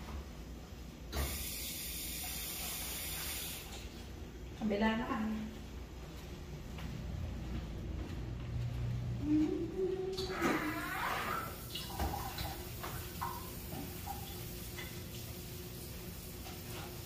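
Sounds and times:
faint steady hum: 0.0 - 17.0
rubbing squeaks: 10.3 - 11.6.

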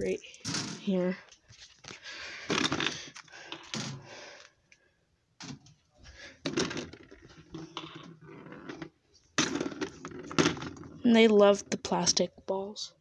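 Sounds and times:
toys knocking and clattering: 2.5 - 4.0, 6.4 - 12.3.

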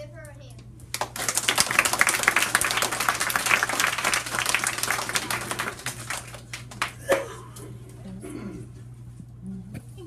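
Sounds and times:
audience applauding: 0.9 - 7.3.

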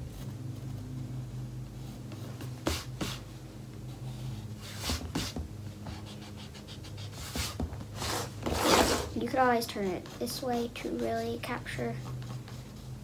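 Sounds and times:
steady low hum: 0.0 - 13.0
pencil scratching on canvas: 3.9 - 13.0.

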